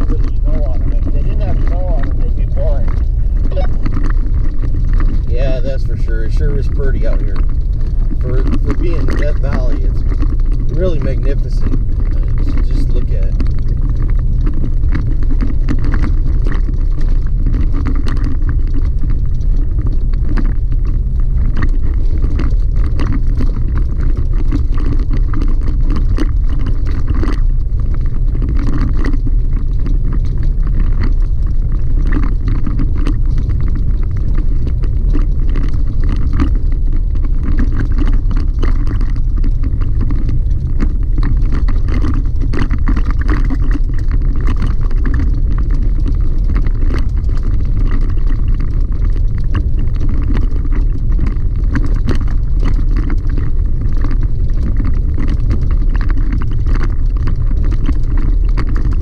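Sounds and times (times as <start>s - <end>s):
small clicks and rattles: 0.0s - 59.0s
tyres rumbling on gravel: 0.0s - 59.0s.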